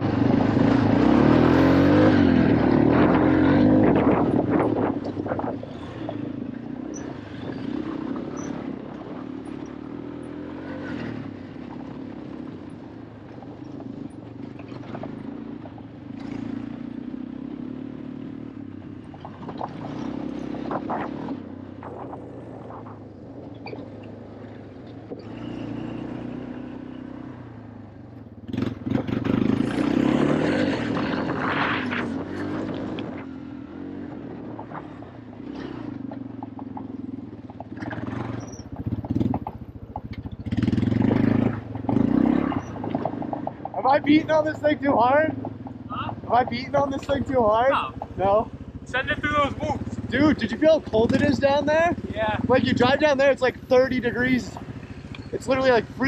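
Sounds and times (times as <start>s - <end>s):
off-road vehicle engine revving: 0.0s - 22.7s, 24.7s - 34.6s, 35.3s - 56.0s.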